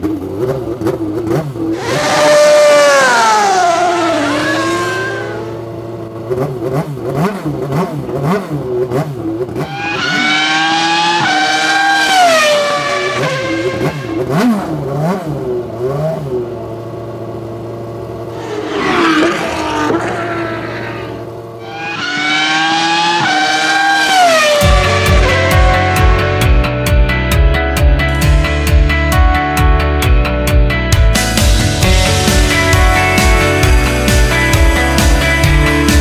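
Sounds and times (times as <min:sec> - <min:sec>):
race car engine revving: 0:00.0 - 0:27.0.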